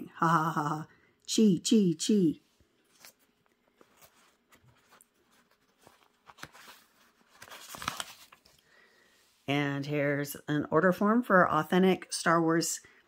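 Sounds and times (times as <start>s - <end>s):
paper pages turning: 2.8s - 8.7s.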